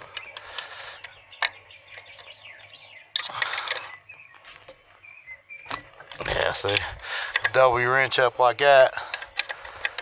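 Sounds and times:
metal wrenches clicking and clinking: 6.1 - 7.8, 8.9 - 10.0.

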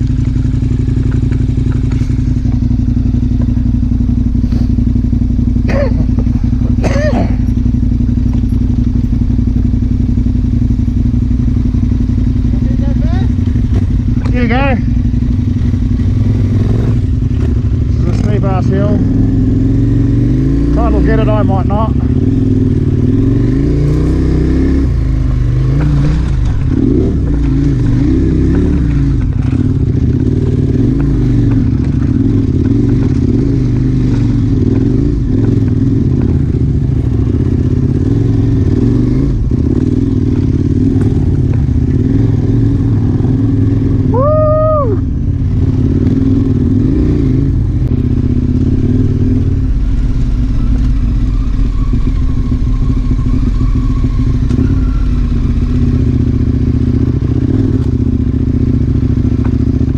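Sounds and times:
motorcycle engine revving: 0.0 - 59.9
short pitched tone: 48.5 - 57.6.

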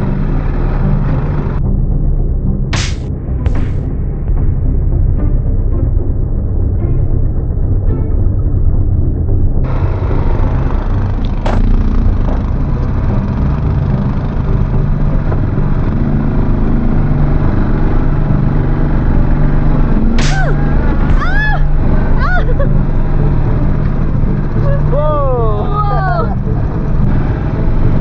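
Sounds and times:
quad bike engine running: 9.7 - 28.0
person calling out: 24.6 - 26.4.

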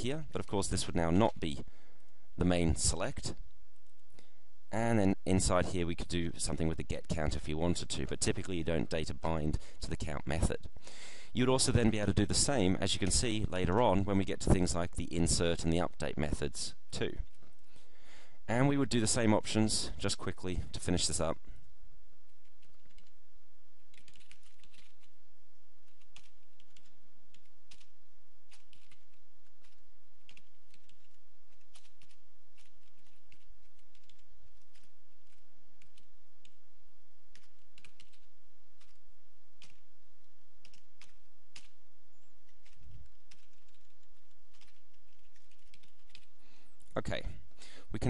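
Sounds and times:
faint low hum: 0.0 - 48.0
typing on computer keyboard: 22.4 - 23.2, 23.8 - 25.1, 25.8 - 27.9, 28.5 - 36.6, 37.3 - 39.0, 39.6 - 39.8, 40.6 - 41.8, 42.4 - 46.3.

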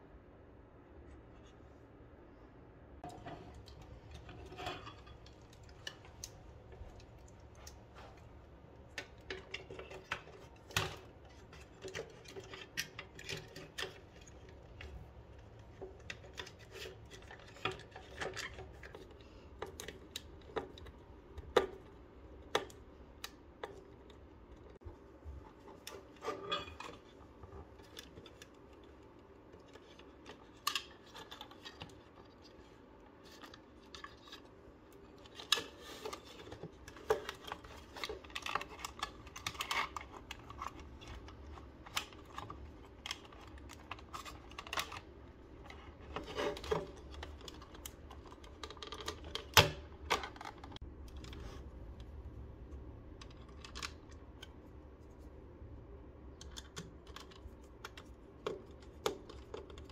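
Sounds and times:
plastic parts clicking and tapping: 8.8 - 24.8, 25.4 - 52.1, 56.3 - 59.9.

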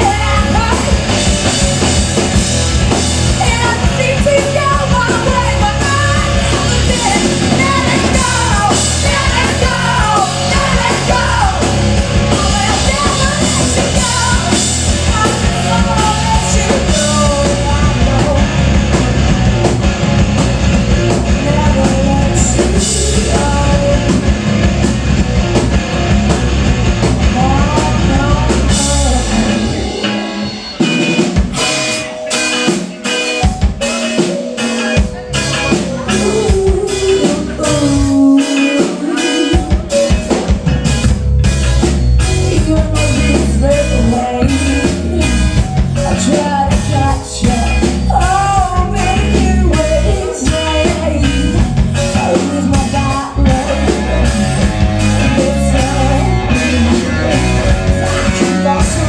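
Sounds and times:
woman singing: 0.0 - 1.6, 3.3 - 19.0, 21.1 - 24.4, 27.2 - 30.1, 35.9 - 40.4, 42.2 - 59.0
live rock band playing: 0.0 - 59.0.

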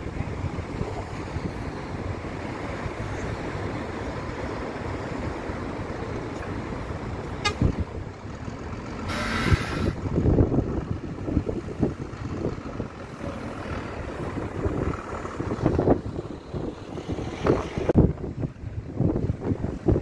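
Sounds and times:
road traffic: 0.0 - 20.0
vehicle horn tooting: 7.4 - 7.8, 9.1 - 9.9
wind on microphone: 9.1 - 20.0.

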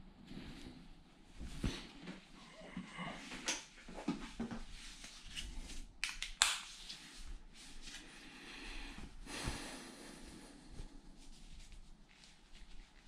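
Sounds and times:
rustling and shuffling: 0.2 - 6.0, 6.6 - 8.3, 8.9 - 13.0.

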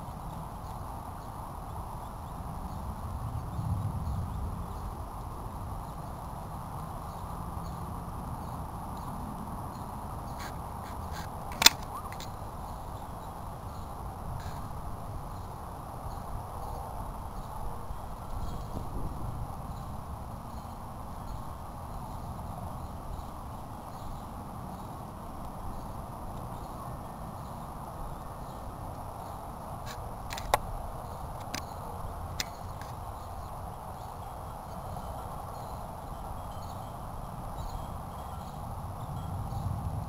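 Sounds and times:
low outdoor rumble: 0.0 - 40.0
sharp click: 11.1 - 12.3, 29.9 - 30.7.

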